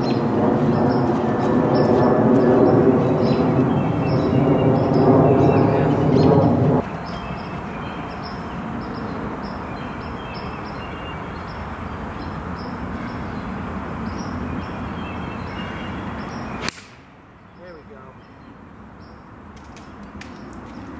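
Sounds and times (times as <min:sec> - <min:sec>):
birds chirping: 0:00.0 - 0:20.9
golf club striking ball: 0:16.6 - 0:17.2.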